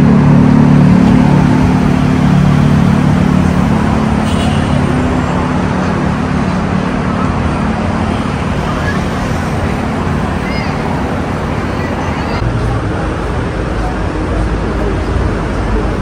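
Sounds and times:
road traffic engine drone: 0.0 - 16.0.

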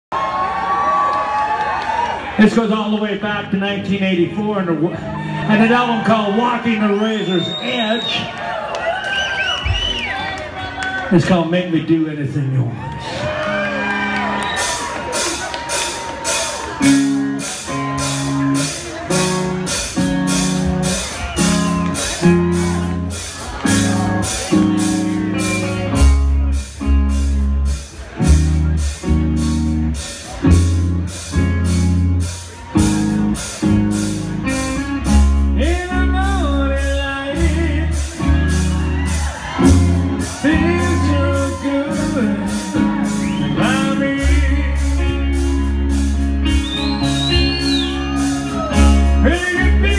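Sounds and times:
electric guitar chords: 13.4 - 49.9
heavy bass and drums: 14.0 - 49.9.

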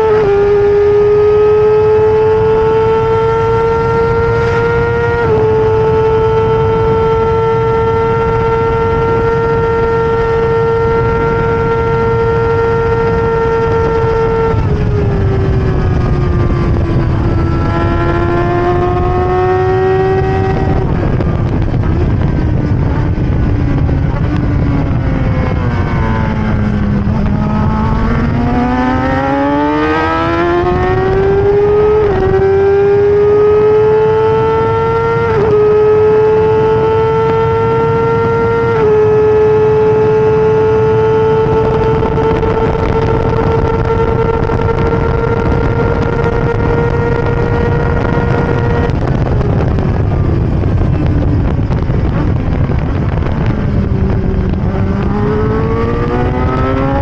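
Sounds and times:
racing car engine at high revs: 0.0 - 57.0.

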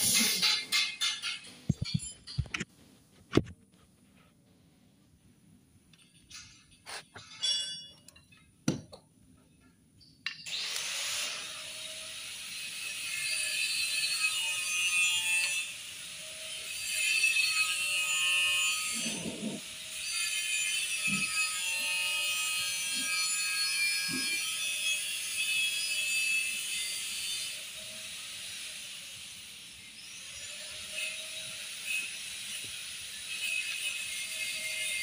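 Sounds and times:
tools scraping on metal: 0.0 - 2.7, 6.0 - 8.5, 16.3 - 25.9.

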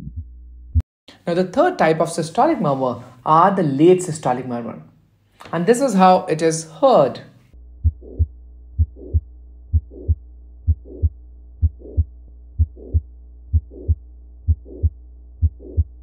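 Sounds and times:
heartbeat with murmur: 0.0 - 0.8, 7.8 - 16.0
steady low hum: 7.5 - 16.0.

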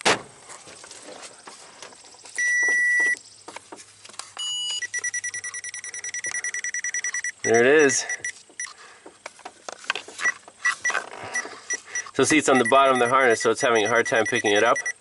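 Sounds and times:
electronic tester beeping: 2.4 - 3.2, 4.4 - 8.7, 10.2 - 15.0.

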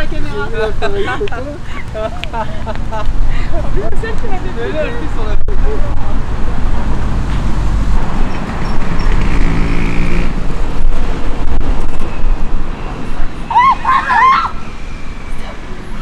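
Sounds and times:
wind buffeting microphone: 1.9 - 13.5.

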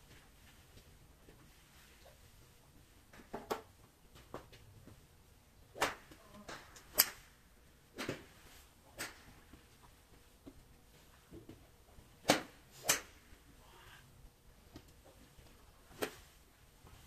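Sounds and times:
golf clubs striking balls: 5.7 - 10.6, 11.3 - 13.6.

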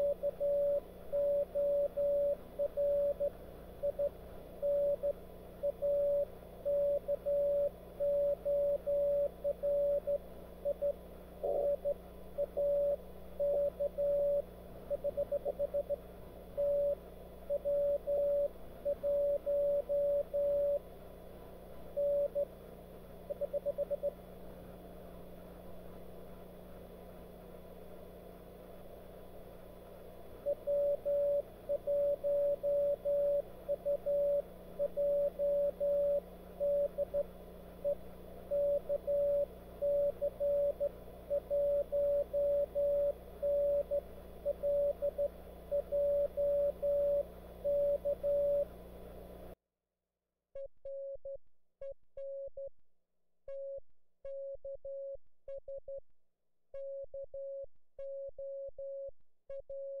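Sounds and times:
morse code tone: 0.0 - 16.0, 16.6 - 20.8, 22.0 - 22.5, 30.4 - 48.7
low hum: 0.0 - 49.6.

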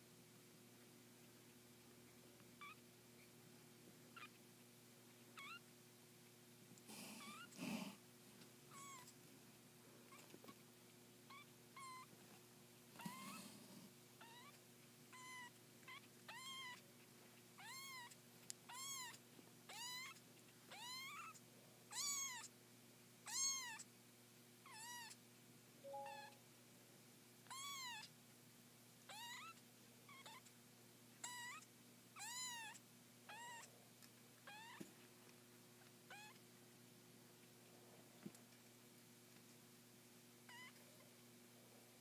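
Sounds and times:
kittens mewing: 6.9 - 8.0, 13.0 - 13.6.

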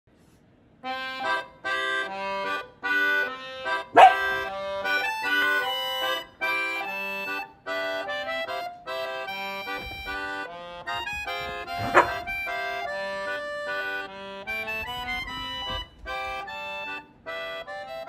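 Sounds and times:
bouncy tune in stacked chords: 0.8 - 18.0
dog bark: 4.0 - 4.5, 11.8 - 12.3.

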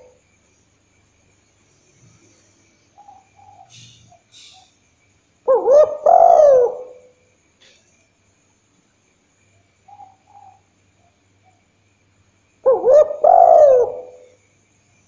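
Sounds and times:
dove cooing: 0.0 - 0.2, 5.5 - 7.1, 12.6 - 14.4.

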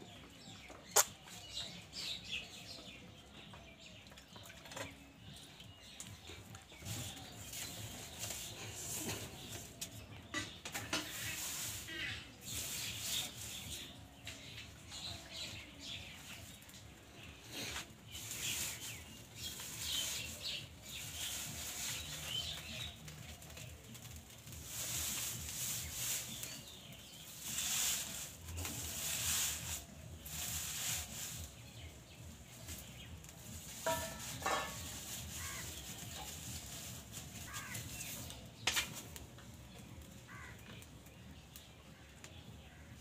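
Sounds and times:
straw fire crackling: 0.0 - 43.0
metal utensils clinking: 33.7 - 35.1.

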